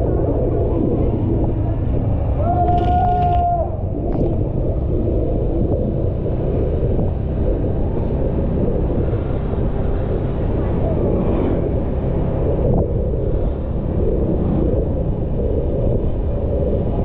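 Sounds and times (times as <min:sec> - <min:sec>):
motorbike engine rumble: 0:00.0 - 0:17.0
wind: 0:00.0 - 0:17.0.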